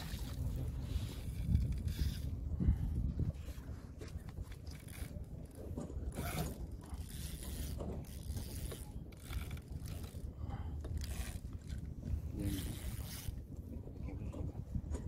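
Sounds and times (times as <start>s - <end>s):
fishing reel winding: 1.2s - 2.3s, 4.7s - 10.3s, 10.9s - 11.9s, 12.5s - 13.4s.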